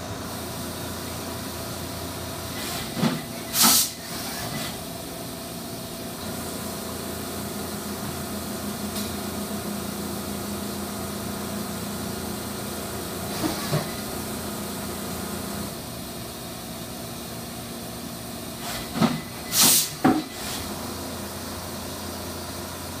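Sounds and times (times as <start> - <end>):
coolant spraying hiss: 2.5 - 4.8, 18.6 - 22.5
short loud hiss: 3.5 - 4.6, 19.5 - 20.6.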